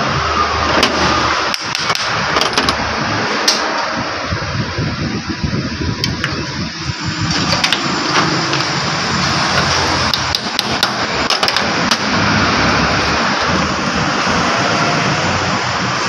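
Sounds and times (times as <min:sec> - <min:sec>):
steady mechanical background noise: 0:00.0 - 0:16.0
hand tools clicking on metal: 0:09.5 - 0:12.2.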